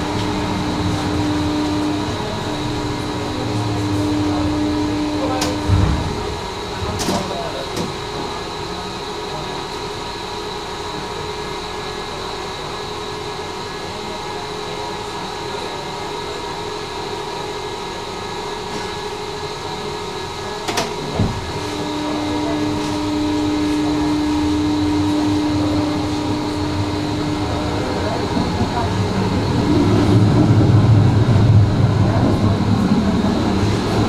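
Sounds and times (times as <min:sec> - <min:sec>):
electrical hum: 0:00.0 - 0:08.1, 0:21.1 - 0:34.0
tram pulling away rumble: 0:00.0 - 0:34.0.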